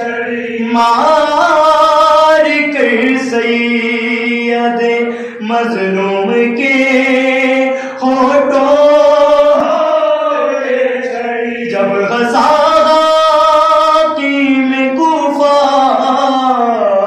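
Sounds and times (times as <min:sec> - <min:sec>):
man singing long held notes: 0:00.0 - 0:17.0
men chanting unaccompanied: 0:00.0 - 0:17.0.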